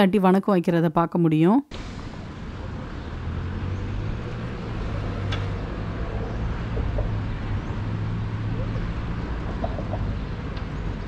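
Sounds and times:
road traffic rumble: 1.7s - 11.0s.

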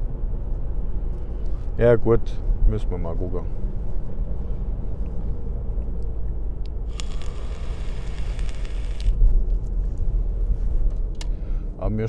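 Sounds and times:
road and engine rumble: 0.0s - 12.0s
rushing hiss: 6.9s - 9.2s.

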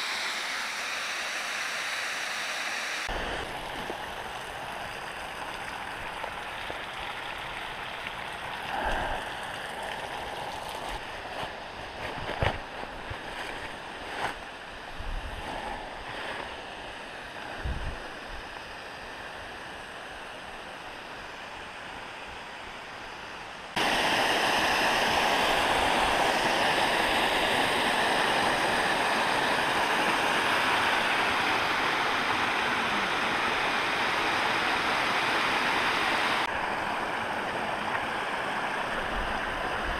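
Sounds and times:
faint water hiss: 0.0s - 39.9s
creek rushing over rocks: 3.0s - 14.4s, 23.7s - 39.9s.

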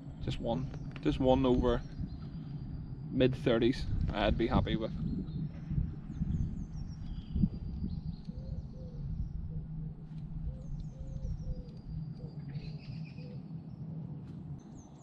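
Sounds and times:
songbird chirping: 0.1s - 15.0s
pigeon cooing: 8.3s - 13.5s.

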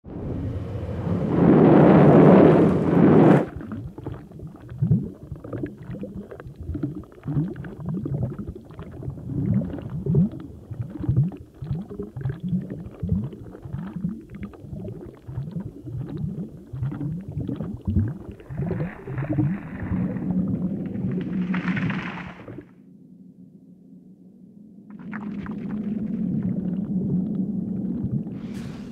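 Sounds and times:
loud rushing whoosh: 0.0s - 3.5s
gurgles dropping in pitch: 0.0s - 22.5s
hissing rush: 28.4s - 28.9s.

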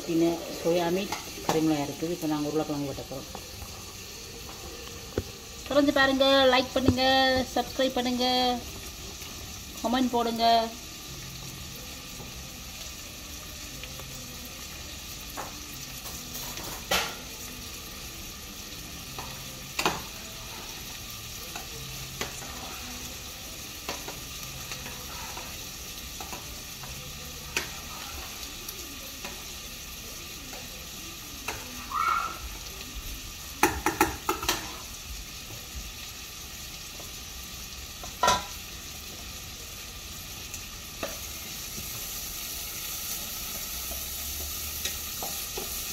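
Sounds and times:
onions sizzling in pot: 0.0s - 45.9s
spoon knocking and scraping pot: 33.6s - 34.8s.

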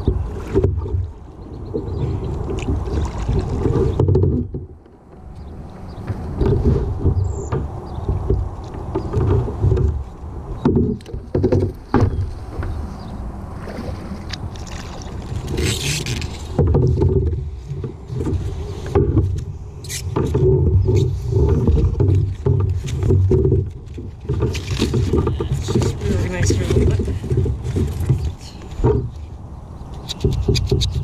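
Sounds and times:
water sloshing: 0.0s - 31.0s
knocks on boat hull: 10.6s - 12.8s.

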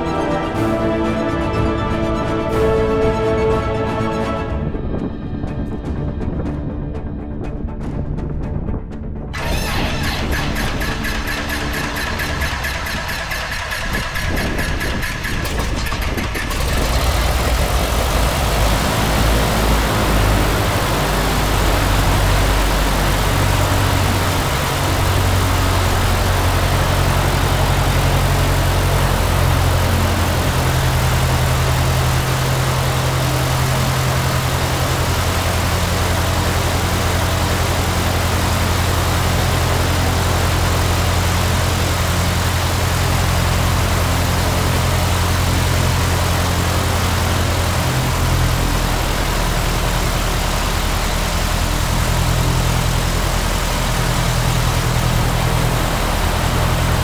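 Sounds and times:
light aircraft engine running: 0.0s - 57.0s.

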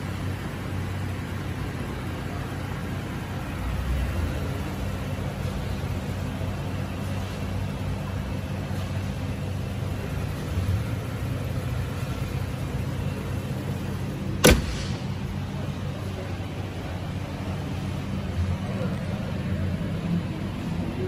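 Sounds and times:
truck engine idling: 0.0s - 21.0s
hood slamming shut: 14.4s - 15.7s.

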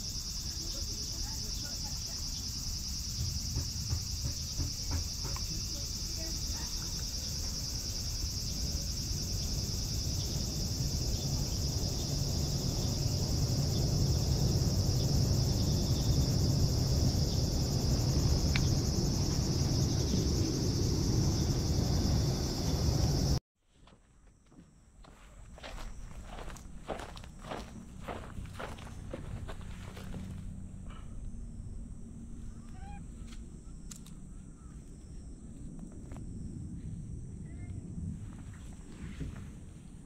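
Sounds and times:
insects chorus: 0.0s - 23.4s, 24.5s - 40.0s
low rumble: 7.2s - 23.4s.

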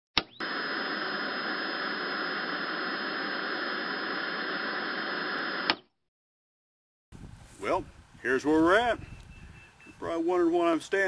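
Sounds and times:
static hiss: 0.4s - 5.8s
thin high whine: 0.4s - 5.8s
sharp click: 5.6s - 5.9s.

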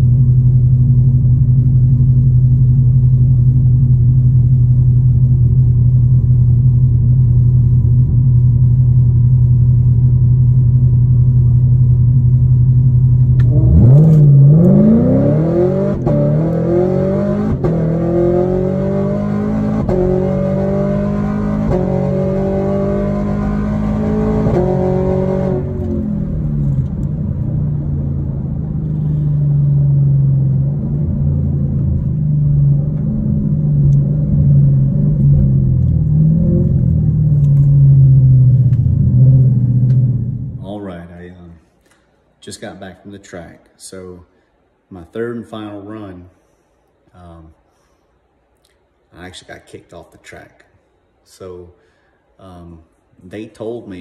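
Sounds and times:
car engine accelerating: 0.0s - 40.8s.

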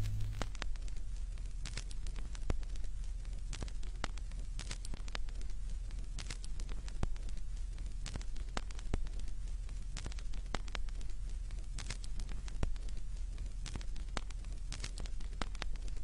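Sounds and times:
low hum: 0.0s - 0.6s
steady hiss: 0.0s - 1.6s
vinyl crackles and pops: 0.0s - 16.0s.

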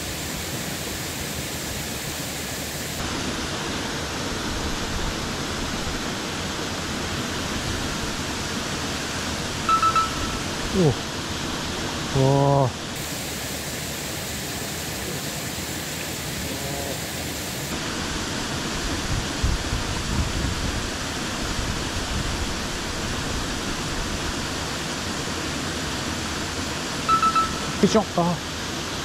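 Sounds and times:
water rushing over weir: 0.0s - 29.0s
loud voice-like hum: 10.7s - 11.0s, 12.2s - 12.8s, 16.4s - 17.1s.

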